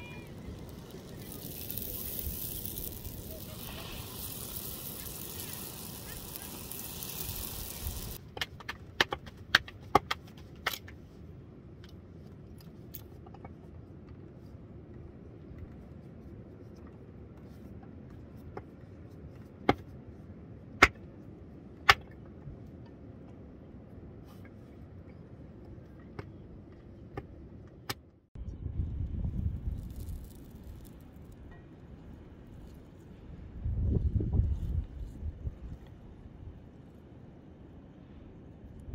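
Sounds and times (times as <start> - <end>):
flatbread sizzling in oil: 0.0 - 8.2.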